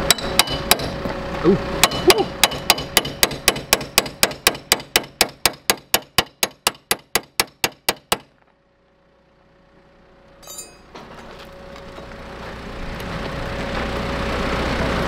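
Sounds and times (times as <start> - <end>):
hammer striking steel pry bar: 0.0 - 0.9, 1.8 - 8.3, 10.4 - 11.0.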